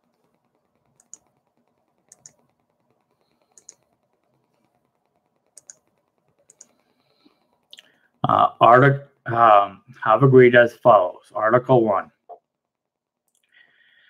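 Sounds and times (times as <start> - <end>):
faint room hiss: 0.0 - 14.0
sharp computer clicks: 0.1 - 7.8.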